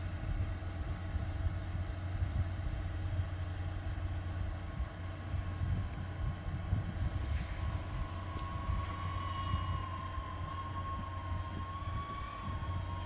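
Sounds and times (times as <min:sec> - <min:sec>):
steady low rumble: 0:00.0 - 0:13.0
drone motors whining: 0:05.2 - 0:13.0.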